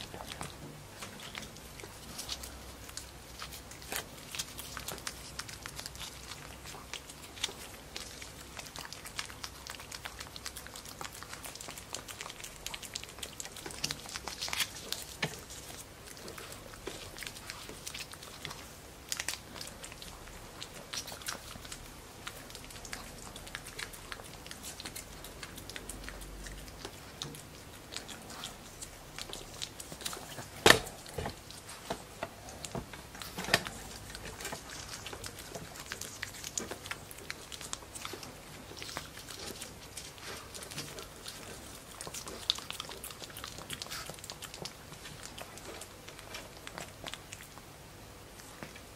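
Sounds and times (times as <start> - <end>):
puppy licking and smacking: 0.0 - 48.9.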